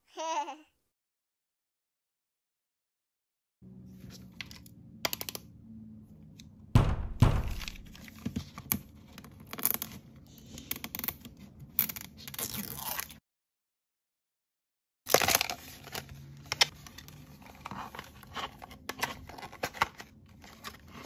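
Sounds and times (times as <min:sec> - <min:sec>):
fingernails tapping plastic packaging: 0:06.8 - 0:08.0
loud thunks: 0:06.8 - 0:08.0
plastic crinkling and tearing: 0:11.8 - 0:13.2, 0:15.1 - 0:21.0.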